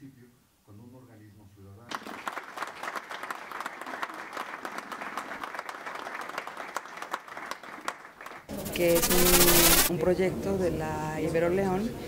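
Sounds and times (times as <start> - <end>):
audience applauding: 1.9 - 8.5.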